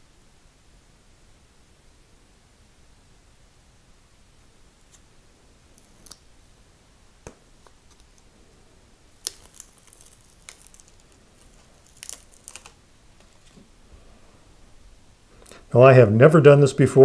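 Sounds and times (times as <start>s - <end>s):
paper backing peeling: 7.2s - 8.3s, 9.2s - 13.8s
stiff paper crinkling: 9.2s - 13.7s.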